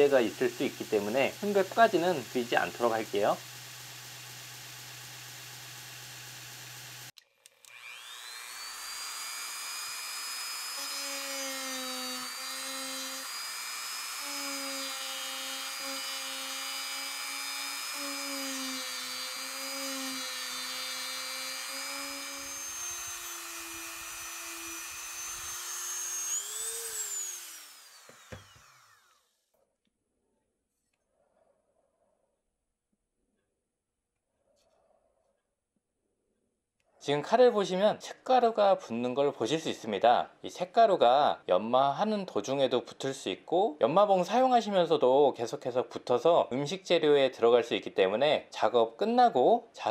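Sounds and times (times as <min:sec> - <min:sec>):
rotary tool grinding steel: 0:00.0 - 0:29.3.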